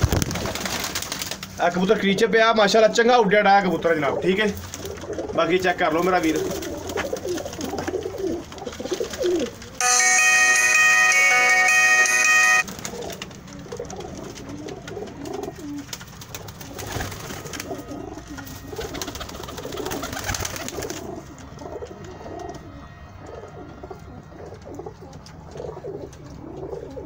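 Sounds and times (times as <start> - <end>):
pigeons cooing: 3.6 - 9.8, 12.7 - 27.0
music: 9.8 - 12.7.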